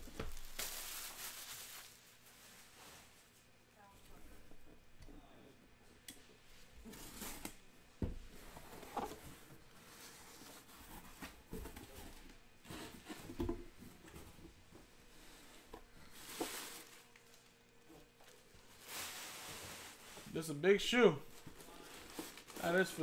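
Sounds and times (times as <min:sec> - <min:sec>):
tissue paper rustle: 0:00.0 - 0:03.4, 0:16.0 - 0:17.5, 0:18.2 - 0:20.6, 0:21.3 - 0:23.0.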